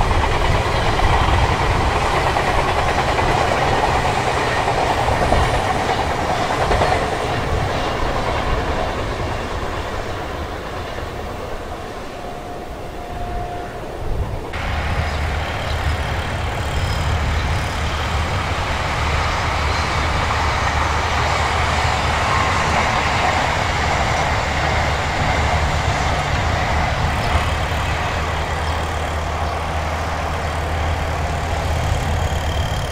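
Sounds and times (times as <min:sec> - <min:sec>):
train wheels rumbling on rails: 0:00.0 - 0:32.9.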